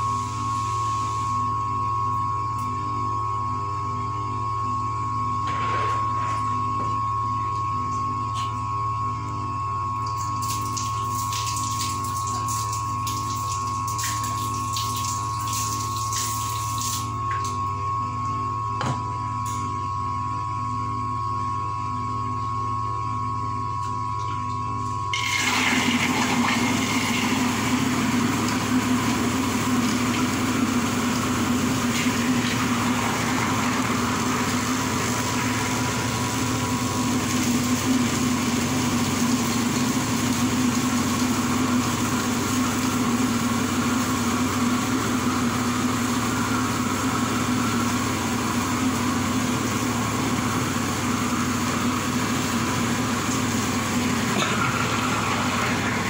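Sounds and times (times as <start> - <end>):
electric grinder whirring: 25.2 - 39.8, 52.3 - 56.0.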